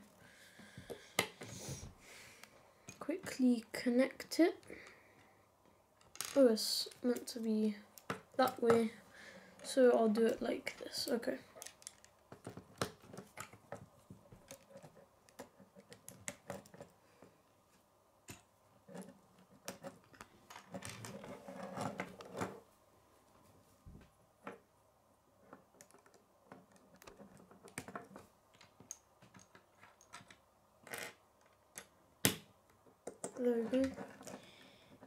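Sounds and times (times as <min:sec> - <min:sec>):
plastic pieces clicking and rattling: 0:06.0 - 0:07.4, 0:09.6 - 0:13.8, 0:14.4 - 0:16.9, 0:25.5 - 0:32.4.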